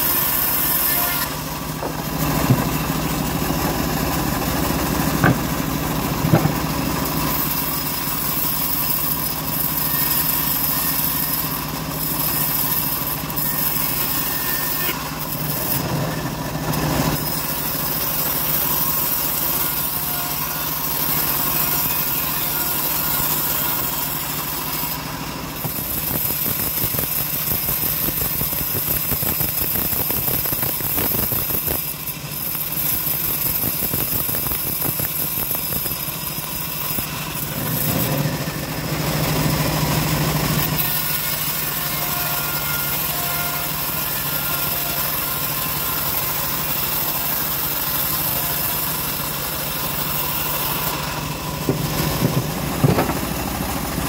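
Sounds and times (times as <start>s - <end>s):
sawmill drive humming: 0.0s - 27.5s, 35.5s - 54.0s
saw blade cutting wood: 0.0s - 54.0s
sharp knocks: 1.8s - 3.0s, 5.0s - 6.8s, 51.6s - 53.4s.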